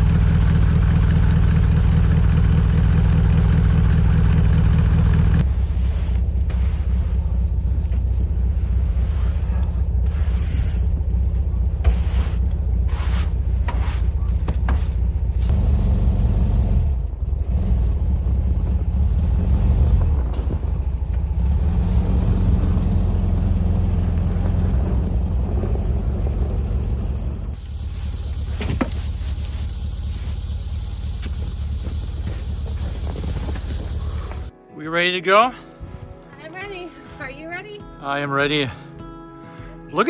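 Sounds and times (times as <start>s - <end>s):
car engine running: 0.0s - 34.5s
snow brush scraping car: 5.4s - 15.6s, 23.0s - 34.5s.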